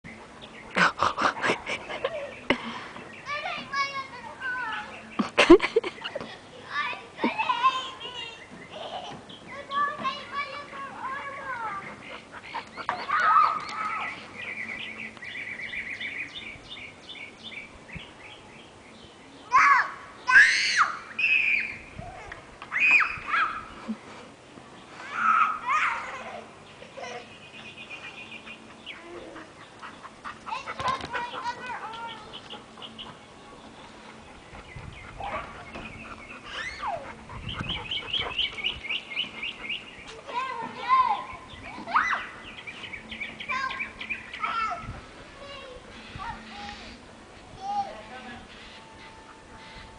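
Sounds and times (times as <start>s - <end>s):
songbird chirping: 0.0s - 49.9s
small bird chirping: 31.9s - 40.2s.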